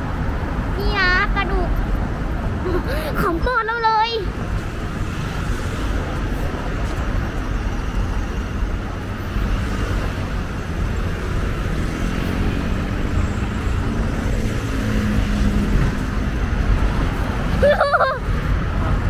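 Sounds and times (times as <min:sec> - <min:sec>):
heavy vehicle engine hum: 0:00.0 - 0:19.0
road traffic passing: 0:00.0 - 0:19.0.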